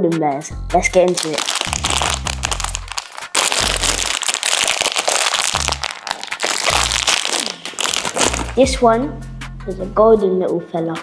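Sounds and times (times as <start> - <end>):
plastic sweet packet crinkling: 0.9 - 8.8.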